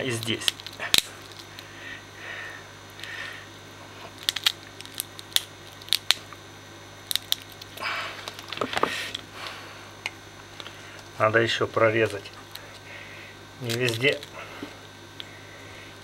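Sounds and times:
side cutters cracking bone: 0.0 - 1.7, 4.1 - 6.4, 7.0 - 9.2, 13.6 - 14.4.

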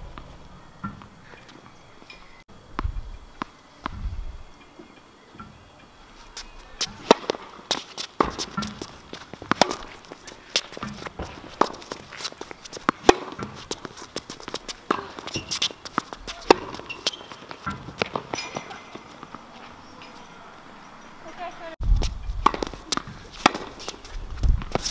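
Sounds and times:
tennis ball hits and bounces: 0.0 - 4.0, 6.4 - 19.4, 22.4 - 24.9
footsteps: 6.0 - 20.4, 21.2 - 24.9.

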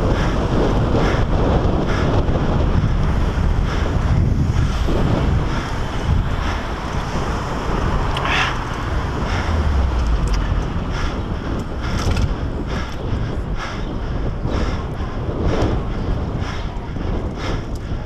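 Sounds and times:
road noise: 0.0 - 18.0
wind buffeting microphone: 0.0 - 18.0.

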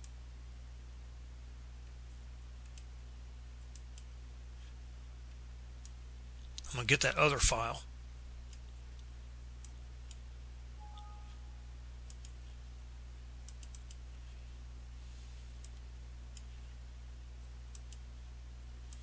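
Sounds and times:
steady low hum: 0.0 - 19.0
computer mouse clicks: 2.6 - 2.9, 12.0 - 12.4, 13.4 - 14.0, 17.7 - 18.0.

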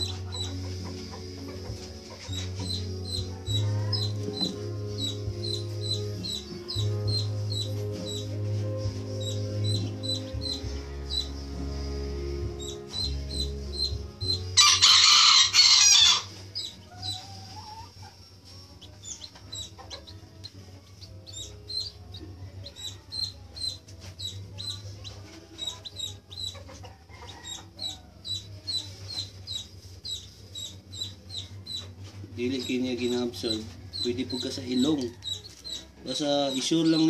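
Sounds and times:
chicken clucking: 0.0 - 8.3, 12.6 - 37.0
chicks peeping: 0.0 - 37.0
rooster crowing: 3.2 - 4.6, 14.6 - 16.4, 26.8 - 28.5.

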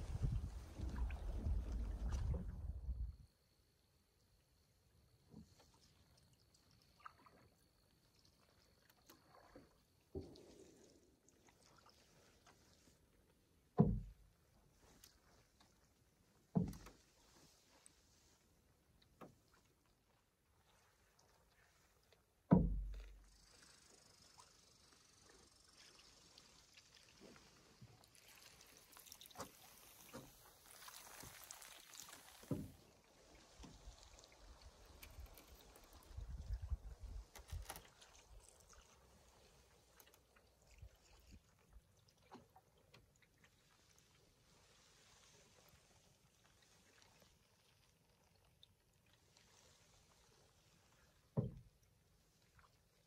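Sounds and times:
canoe paddle splashing: 0.0 - 3.1, 5.3 - 53.0
dull knock: 22.5 - 22.9.

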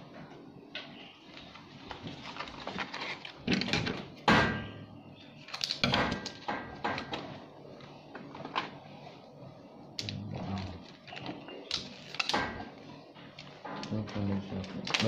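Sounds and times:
plastic rustling: 1.2 - 3.8.

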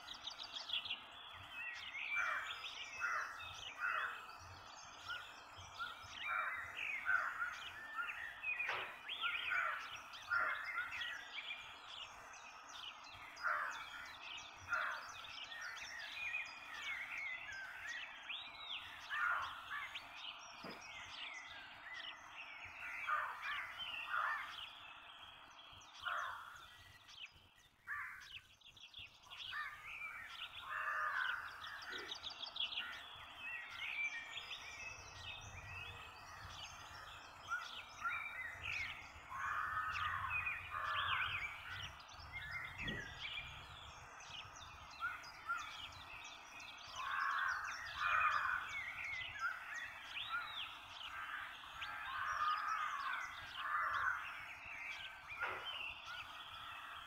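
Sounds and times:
birds chirping and trilling: 0.0 - 57.0.

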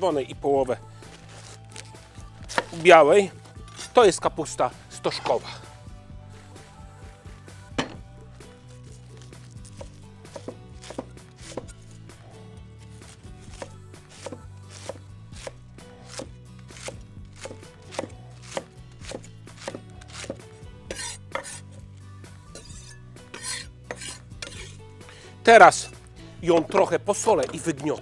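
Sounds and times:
knife chopping cabbage on board: 2.5 - 2.8, 9.7 - 11.9, 13.0 - 21.6.

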